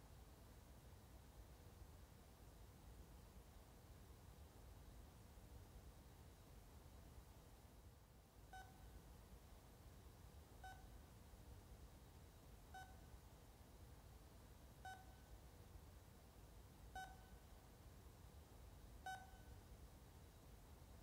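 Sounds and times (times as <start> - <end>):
monitor beeping: 19.1 - 19.5.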